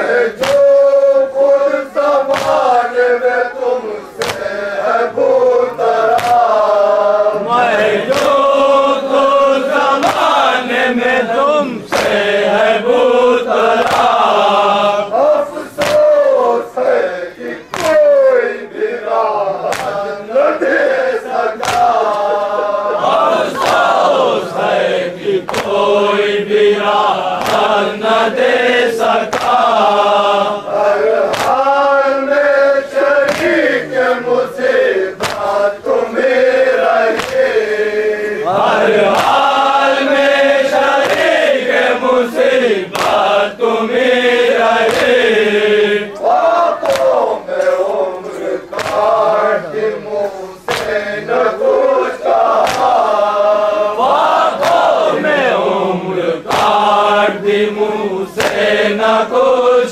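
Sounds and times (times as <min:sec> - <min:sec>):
men chanting in unison: 0:00.0 - 0:59.9
hands striking chests: 0:19.6 - 0:20.0, 0:21.6 - 0:24.1, 0:35.2 - 0:35.6, 0:48.7 - 0:49.1, 0:52.6 - 0:53.0.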